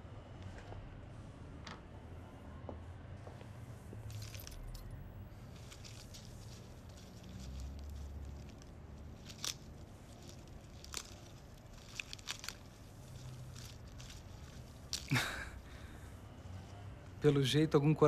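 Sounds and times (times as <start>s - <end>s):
paper crinkling: 4.1s - 4.7s, 5.4s - 15.9s.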